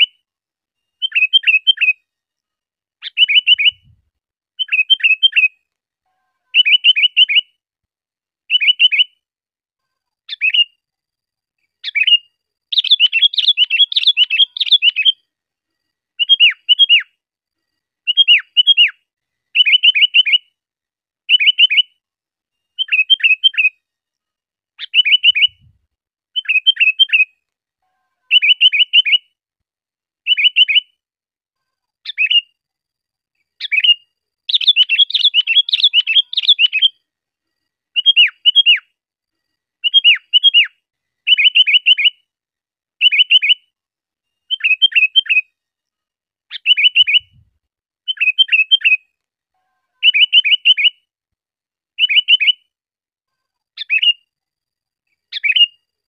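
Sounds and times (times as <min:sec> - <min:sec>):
bulbul singing: 0:01.0 - 0:02.0, 0:03.0 - 0:04.0, 0:04.6 - 0:05.5, 0:06.6 - 0:07.5, 0:08.5 - 0:09.2, 0:11.8 - 0:15.3, 0:16.2 - 0:17.1, 0:18.1 - 0:19.0, 0:19.6 - 0:20.5, 0:21.3 - 0:22.0, 0:22.8 - 0:23.7, 0:24.8 - 0:25.7, 0:26.4 - 0:27.3, 0:28.3 - 0:29.3, 0:30.3 - 0:31.0, 0:33.5 - 0:37.0, 0:38.0 - 0:38.9, 0:39.8 - 0:40.7, 0:41.3 - 0:42.2, 0:43.0 - 0:43.6, 0:44.4 - 0:45.4, 0:46.5 - 0:47.4, 0:48.1 - 0:49.0, 0:50.0 - 0:51.0, 0:52.0 - 0:52.6, 0:53.8 - 0:54.2, 0:55.3 - 0:55.8.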